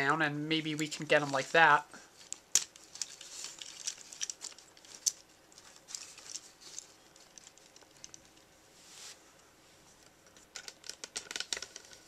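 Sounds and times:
plastic toy clicks and rustling: 2.3s - 8.4s, 10.4s - 12.0s.

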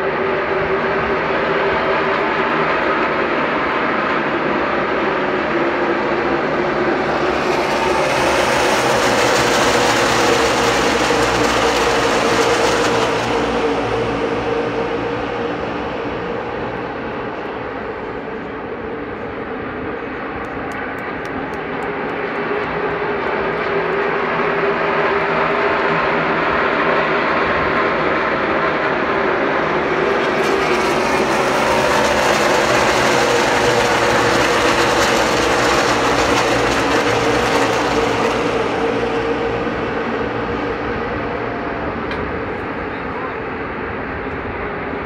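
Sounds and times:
race car engines passing: 0.0s - 45.0s.

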